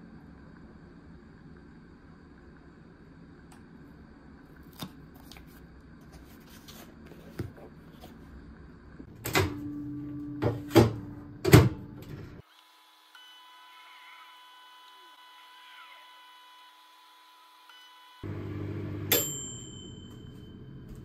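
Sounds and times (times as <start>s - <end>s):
microwave heating whine: 0.0s - 21.0s
microwave hum: 7.7s - 12.4s, 17.8s - 21.0s
microwave door shutting: 9.1s - 12.4s.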